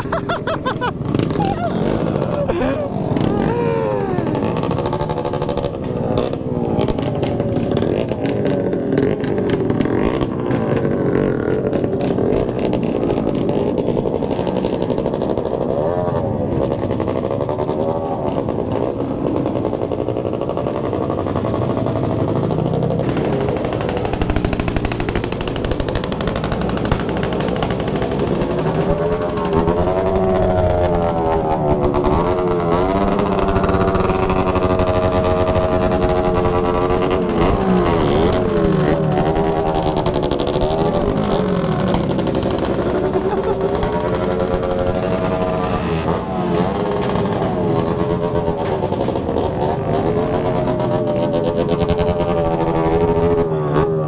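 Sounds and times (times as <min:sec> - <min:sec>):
motorcycle engines revving: 0:00.0 - 0:54.0.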